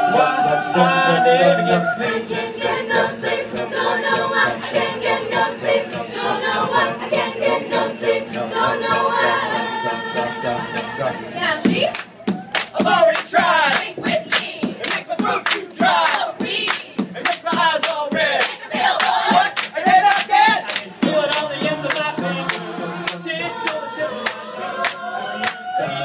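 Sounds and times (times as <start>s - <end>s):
vocal group singing: 0.0s - 26.0s
hand claps: 11.9s - 25.6s.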